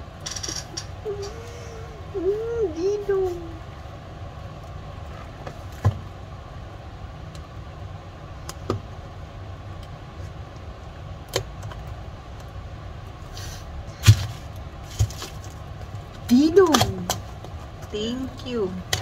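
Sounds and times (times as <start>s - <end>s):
plastic rustle: 14.0s - 16.1s.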